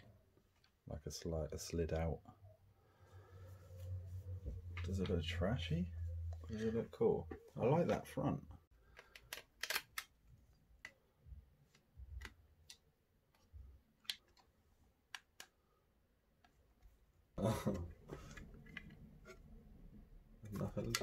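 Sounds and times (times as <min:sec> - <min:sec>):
small parts clicking and tapping: 0:08.8 - 0:15.6.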